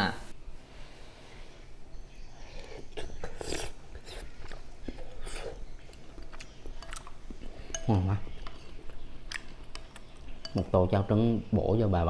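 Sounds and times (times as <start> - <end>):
man slurping porridge: 2.7 - 5.6
spoon clicking against bowl: 7.7 - 8.7, 9.3 - 10.7.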